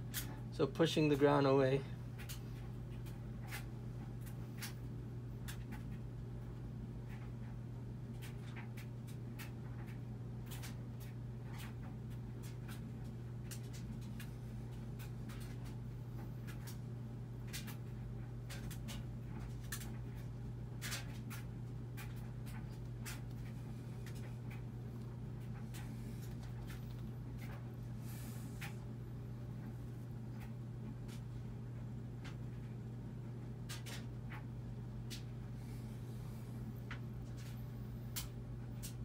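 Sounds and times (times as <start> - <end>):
steady low hum: 0.0 - 39.0
ticks and scratching on mat: 7.0 - 28.9.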